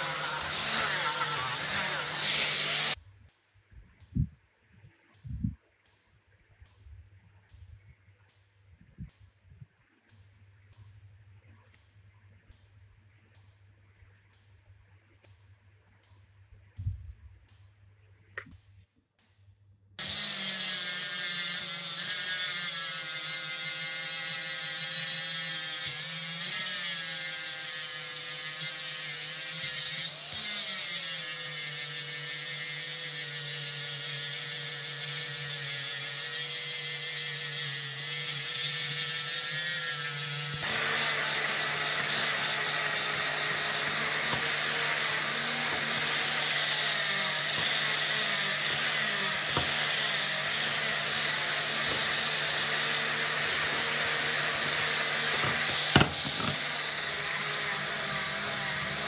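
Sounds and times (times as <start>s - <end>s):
angle grinder cutting steel: 0.0s - 3.0s, 20.0s - 59.0s
angle grinder grinding rust: 0.0s - 3.0s, 20.0s - 59.0s.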